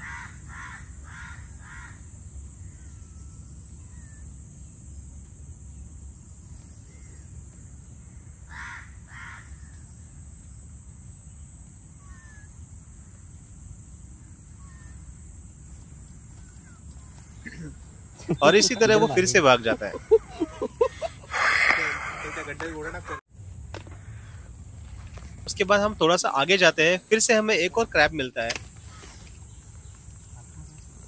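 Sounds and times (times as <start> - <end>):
crow cawing: 0.0 - 2.0, 8.5 - 9.8, 12.0 - 12.4, 19.9 - 23.2, 23.9 - 24.5, 28.8 - 29.3
high-pitched insect drone: 0.1 - 5.5, 11.2 - 31.0.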